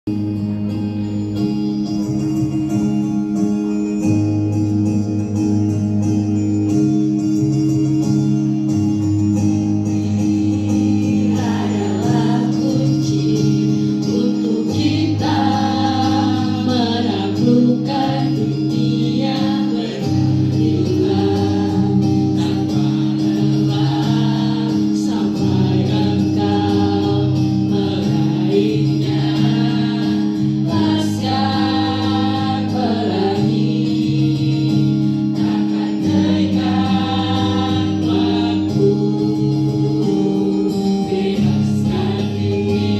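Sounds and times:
group singing over backing track: 10.0 - 42.9.

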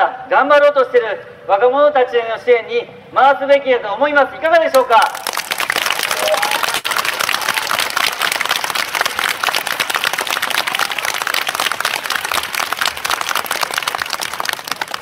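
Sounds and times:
crowd applauding: 5.0 - 15.0.

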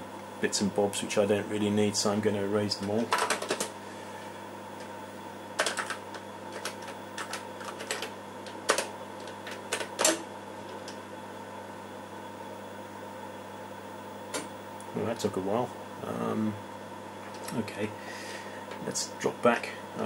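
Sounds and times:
keyboard keystrokes clicking: 5.6 - 10.2.

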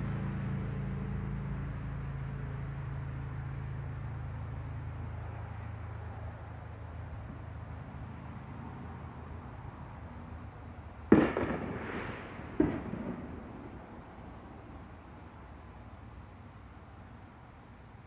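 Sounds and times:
firework bangs echoing: 11.1 - 14.8.

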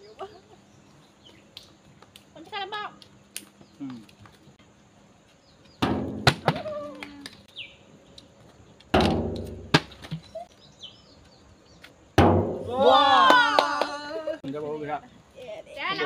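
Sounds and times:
plastic bottle thunking on steel drum: 5.8 - 6.6, 9.0 - 10.2, 12.2 - 12.6.

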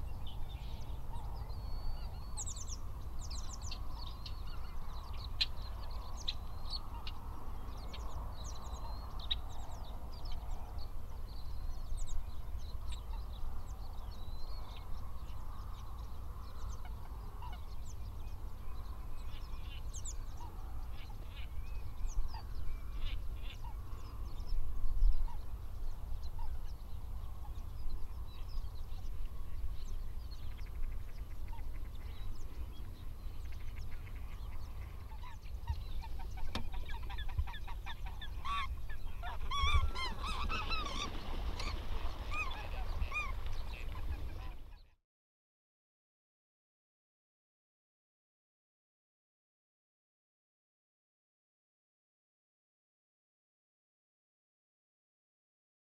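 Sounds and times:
geese honking: 36.0 - 44.6.

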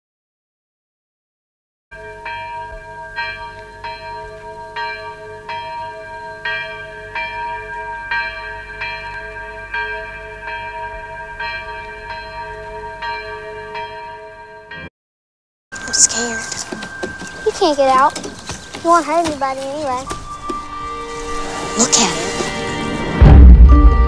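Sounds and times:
bells being struck: 2.0 - 14.9, 15.8 - 23.2
held ringing tone: 15.7 - 22.7.

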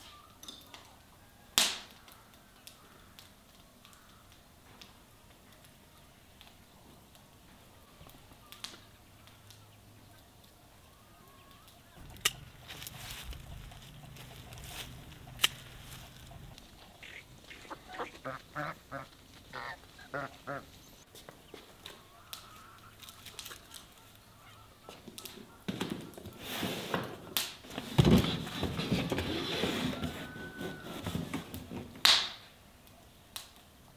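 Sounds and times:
waterfowl calling: 7.6 - 26.4
sharp clicks: 11.6 - 17.2.

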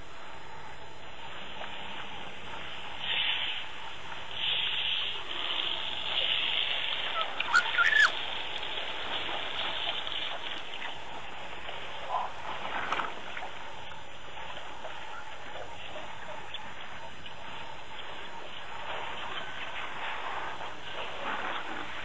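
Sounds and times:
steady outdoor hiss: 0.0 - 22.0
sharp high squeaks: 7.4 - 8.1.

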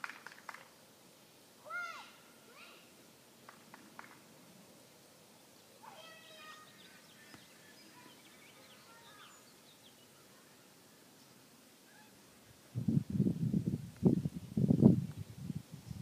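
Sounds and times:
distant bird chirps: 5.3 - 12.2.

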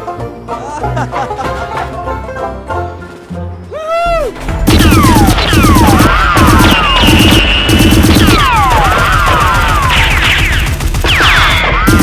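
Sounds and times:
action music: 0.0 - 12.0
movie gunfire effects: 4.6 - 12.0.

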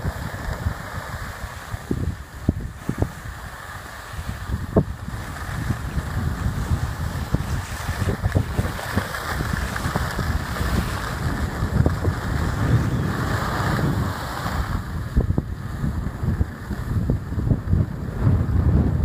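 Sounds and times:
skis sliding on snow: 0.0 - 18.8
wind buffeting microphone: 0.0 - 19.0
short scrapes and clicks: 7.2 - 14.8.

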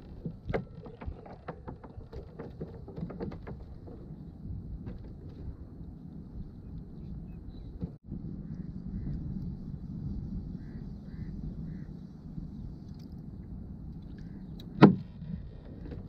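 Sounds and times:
light clicks and knocks: 0.0 - 4.2
wind rumble on microphone: 0.0 - 16.0.

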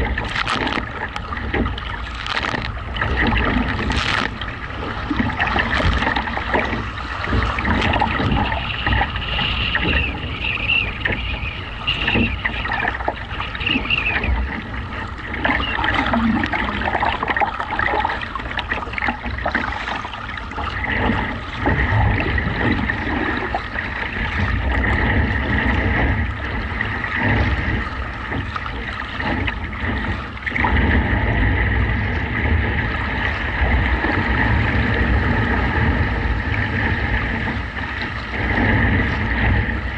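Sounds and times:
paddles splashing: 0.0 - 31.6
waves sloshing against hull: 0.0 - 39.9
wind buffeting microphone: 0.0 - 39.9.

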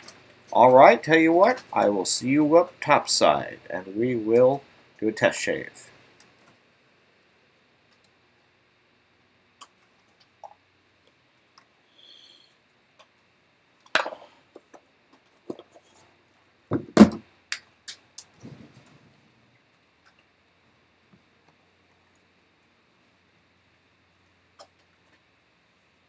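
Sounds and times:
thumps: 16.7 - 17.3.

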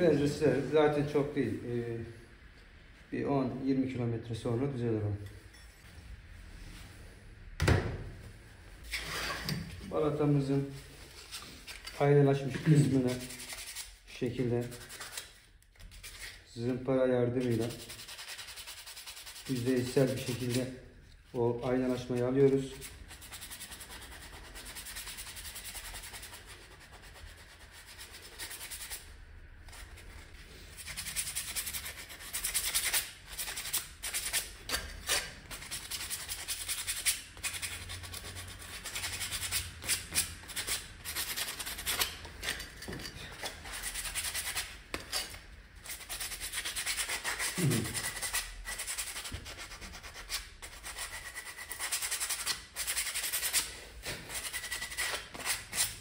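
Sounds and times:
sandpaper rasping: 12.8 - 14.0, 14.6 - 16.4, 17.4 - 20.6, 22.7 - 42.2, 43.4 - 53.7, 54.3 - 56.0.

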